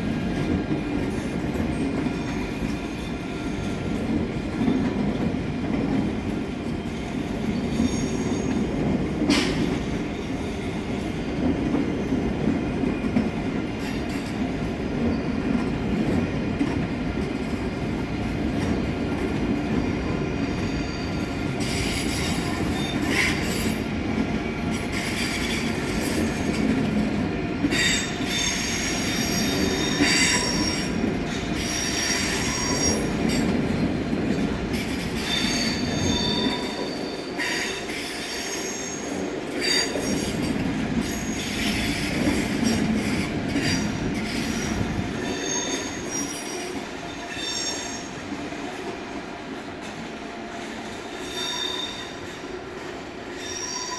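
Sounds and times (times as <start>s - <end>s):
train rolling rumble: 0.0s - 53.7s
train wheels squealing: 1.7s - 4.0s, 6.8s - 8.7s, 15.0s - 15.5s, 19.8s - 23.9s, 27.7s - 33.5s, 34.8s - 48.3s, 51.0s - 52.4s, 53.3s - 53.9s.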